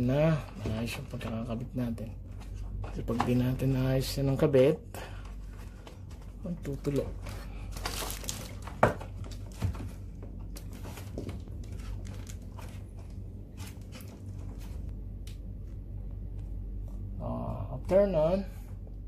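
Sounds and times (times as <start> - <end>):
steady low hum: 0.0 - 19.0
plastic rustle: 5.4 - 14.9.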